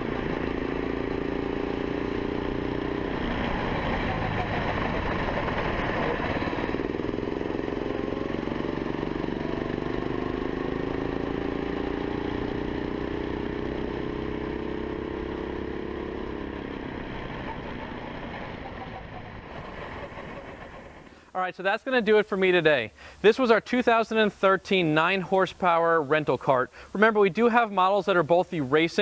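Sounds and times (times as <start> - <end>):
go-kart engine running: 0.0 - 21.3.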